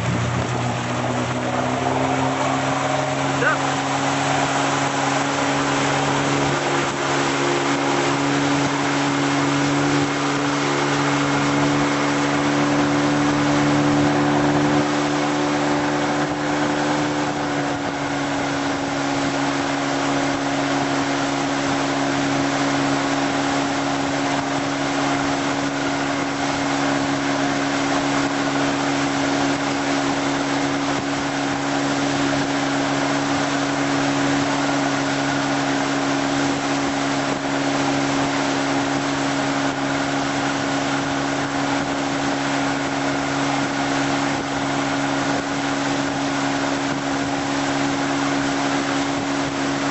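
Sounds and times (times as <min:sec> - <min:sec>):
boat engine hum: 0:00.0 - 0:49.9
rushing water: 0:00.0 - 0:49.9
wind: 0:00.0 - 0:49.9.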